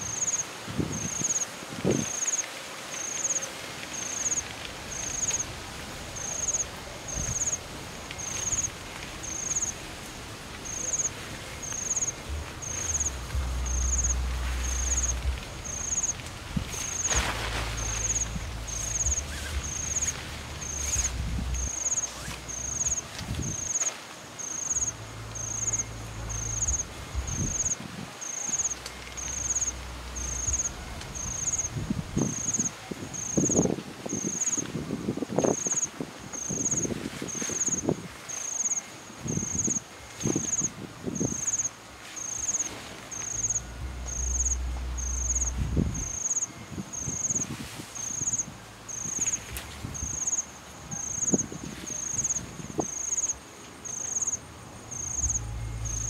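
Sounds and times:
tent fabric rustling: 0:00.0 - 0:54.4
insect chirping: 0:00.0 - 0:56.0
low rumble: 0:04.6 - 0:23.5, 0:24.9 - 0:27.7, 0:28.7 - 0:32.4, 0:42.9 - 0:46.2, 0:54.5 - 0:56.0.

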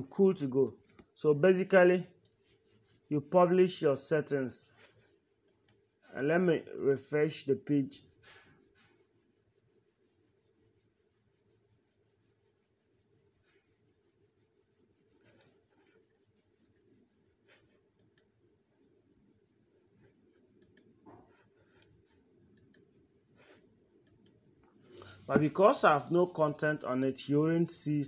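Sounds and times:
faint clicks: 0:20.6 - 0:20.9, 0:22.5 - 0:23.0.

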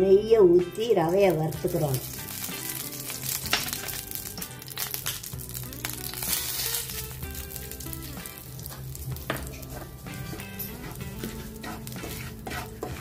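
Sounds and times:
background music: 0:00.0 - 0:13.0
ghee sizzling in a frying pan: 0:00.8 - 0:13.0.

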